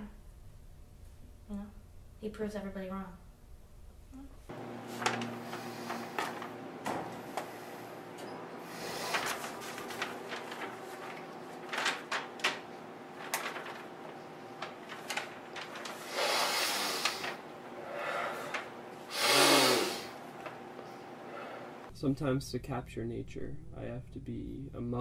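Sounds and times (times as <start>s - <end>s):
faint steady hum: 0.0s - 25.0s
stiff paper rustling: 4.6s - 7.7s, 8.6s - 17.7s
breathy rushes: 15.9s - 20.2s.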